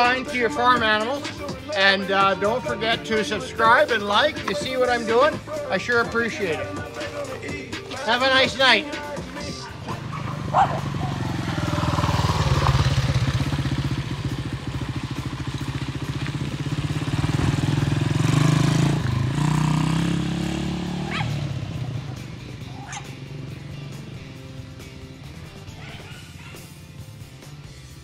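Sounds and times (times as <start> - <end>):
dirt bike engine revving: 0.0 - 27.7.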